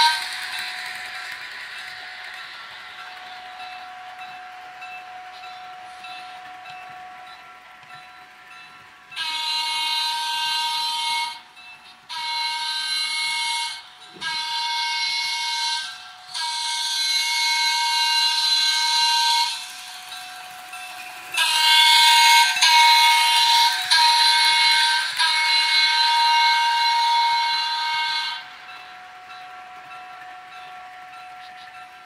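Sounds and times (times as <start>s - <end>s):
electronic train horn blasts: 9.2s - 11.5s, 12.1s - 19.7s, 21.4s - 28.6s.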